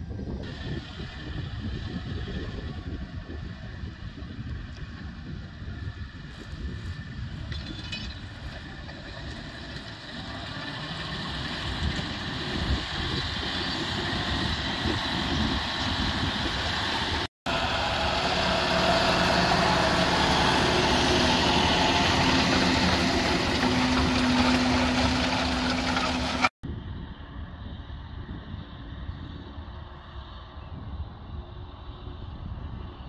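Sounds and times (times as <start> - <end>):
tractor diesel engine under load: 0.1 - 26.6.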